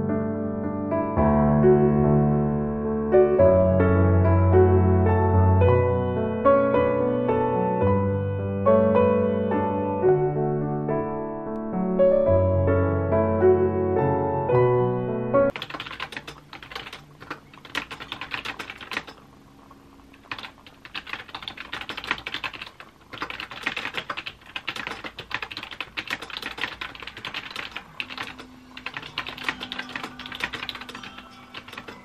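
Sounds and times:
piano piece: 0.0s - 20.6s, 25.9s - 32.0s
fast typing on laptop keyboard: 15.5s - 19.3s, 20.1s - 32.0s.

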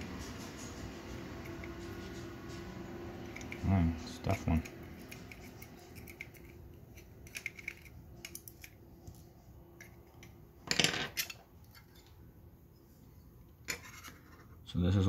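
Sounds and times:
screwdriver ticking on small screws: 4.4s - 8.7s.

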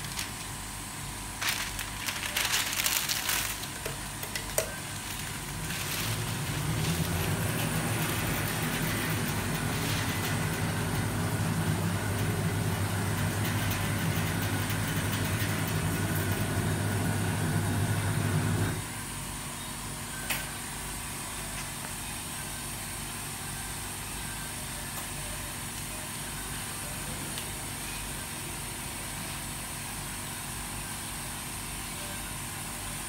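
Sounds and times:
machine motor hum: 0.0s - 18.9s
faint background hum: 0.0s - 33.0s.

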